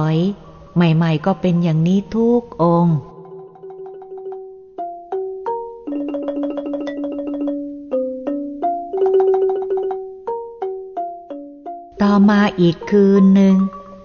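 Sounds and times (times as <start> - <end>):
marimba notes and rolls: 3.2 - 14.0.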